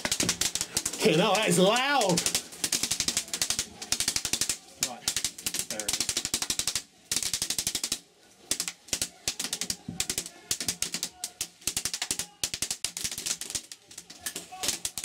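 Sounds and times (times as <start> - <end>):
airsoft guns firing full auto: 0.0 - 15.0.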